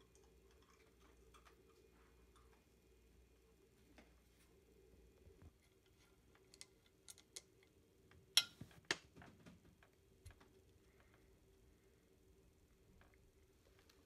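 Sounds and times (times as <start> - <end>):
candies clicking on ceramic dish: 6.0 - 7.8.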